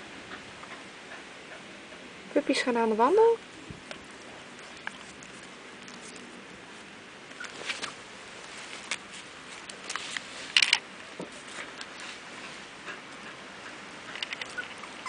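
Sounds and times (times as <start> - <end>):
puppy paws rustling on fabric: 3.7 - 10.6.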